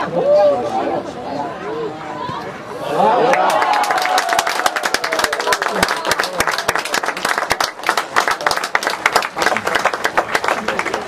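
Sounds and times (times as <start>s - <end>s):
spectators applauding: 3.0s - 11.0s.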